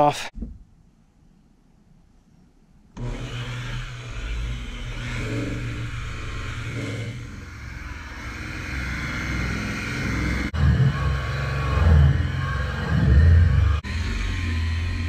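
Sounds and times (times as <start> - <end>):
electric polisher motor hum: 3.0 - 15.0.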